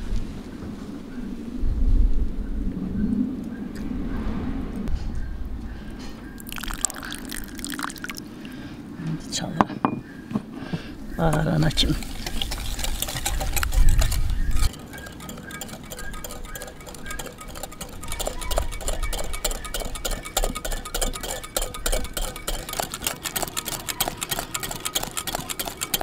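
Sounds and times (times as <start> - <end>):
whisk clicking against glass bowl: 11.3 - 26.0.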